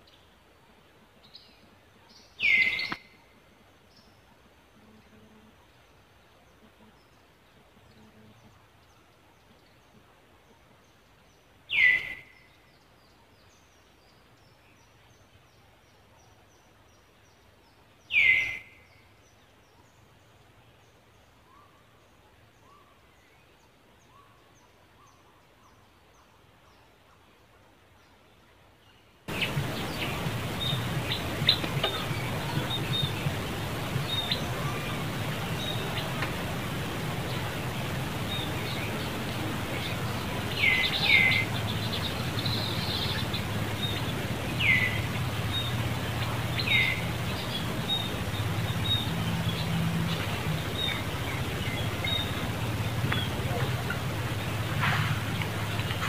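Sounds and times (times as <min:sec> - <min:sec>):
faint bird chirping: 0:00.0 - 0:56.0
loud short bird calls falling: 0:29.3 - 0:40.0.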